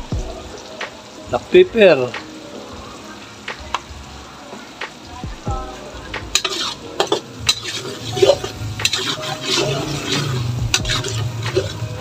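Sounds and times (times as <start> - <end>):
oil sizzling: 0.0 - 12.0
metal spatula scraping a wok: 6.3 - 12.0.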